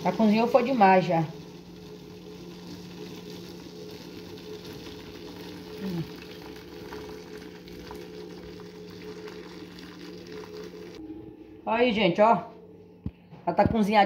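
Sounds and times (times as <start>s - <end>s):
water trickling into strainer: 2.6s - 11.0s
low hum: 5.7s - 14.0s.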